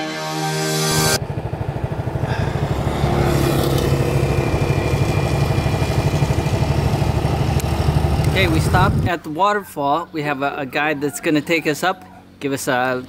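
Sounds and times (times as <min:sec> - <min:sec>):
scooter engine running: 0:01.2 - 0:09.6.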